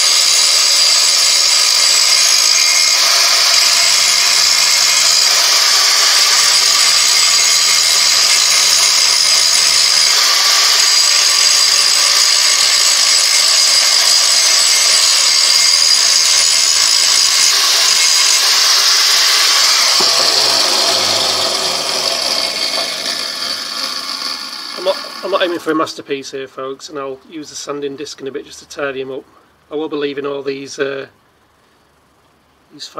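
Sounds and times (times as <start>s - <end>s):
angle grinder grinding metal: 0.0s - 25.8s
grinder spinning down: 0.0s - 25.8s.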